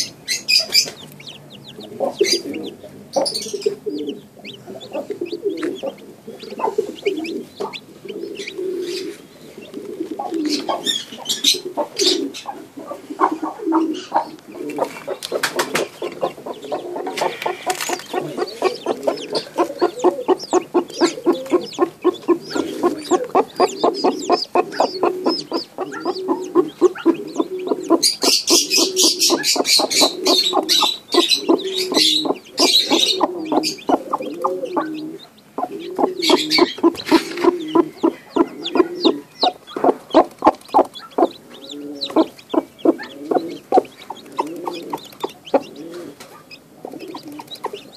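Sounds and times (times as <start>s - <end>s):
low clucking: 0.0s - 47.9s
higher noisy chick sounds: 11.8s - 47.8s.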